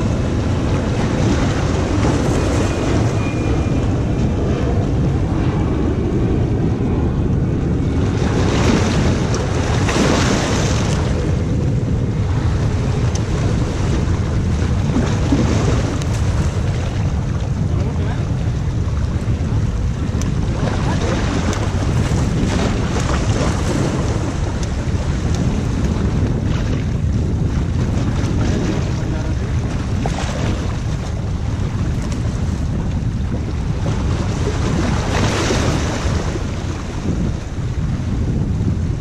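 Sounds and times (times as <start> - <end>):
sea waves washing against rocks: 0.0 - 39.0
wind buffeting microphone: 0.0 - 39.0.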